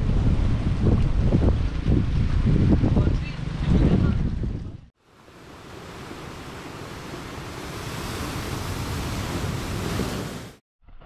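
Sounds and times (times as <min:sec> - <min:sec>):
wind: 0:00.0 - 0:11.0
surf: 0:05.1 - 0:10.6.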